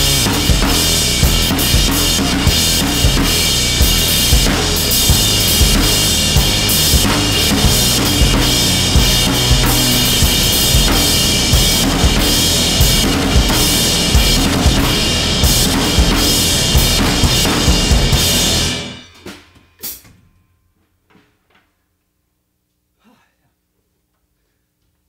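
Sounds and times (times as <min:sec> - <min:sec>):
drum kit played fast: 0:00.0 - 0:20.0.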